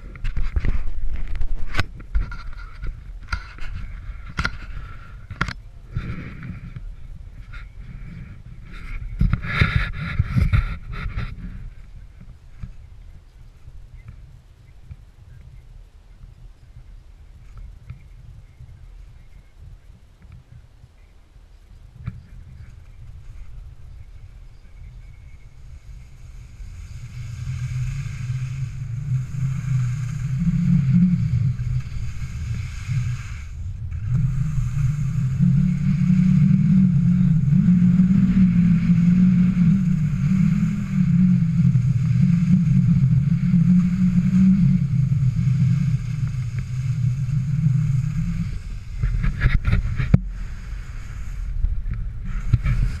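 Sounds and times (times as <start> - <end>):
wind buffeting microphone: 0.0 - 53.0
skis sliding on snow: 25.6 - 53.0.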